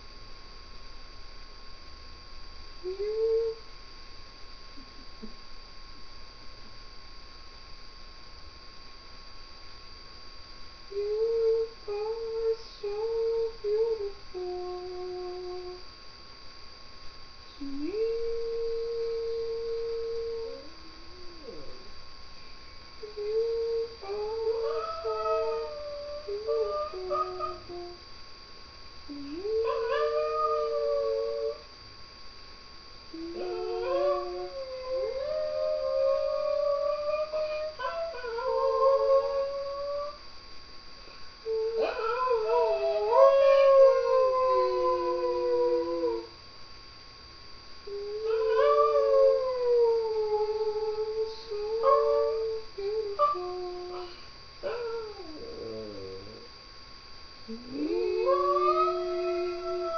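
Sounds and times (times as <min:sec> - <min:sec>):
faint high whine: 0:00.0 - 0:59.9
person singing: 0:10.9 - 0:15.8
dog howling: 0:17.8 - 0:21.9, 0:23.1 - 0:28.0, 0:29.1 - 0:31.6, 0:33.2 - 0:40.2, 0:41.5 - 0:46.3, 0:47.9 - 0:56.5, 0:57.5 - 0:59.9.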